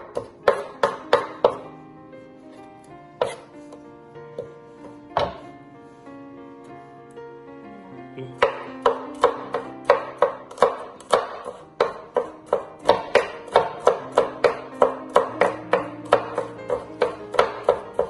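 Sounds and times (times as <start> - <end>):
knife chopping on wooden board: 0.0 - 1.7, 3.2 - 5.5, 8.4 - 18.0
background guitar music: 0.0 - 18.0.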